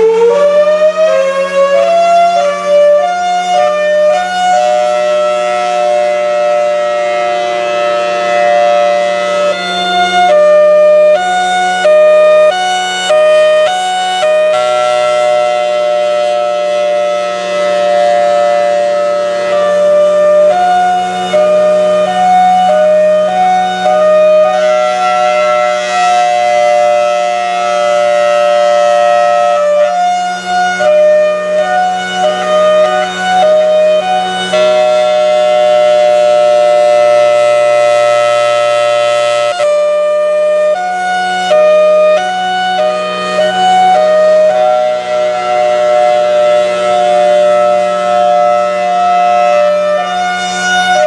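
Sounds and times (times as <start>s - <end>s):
outdoor warning siren: 0.0s - 51.0s.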